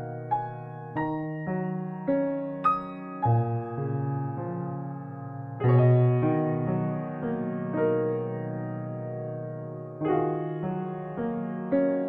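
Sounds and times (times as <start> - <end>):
slow piano chords: 0.0 - 12.0.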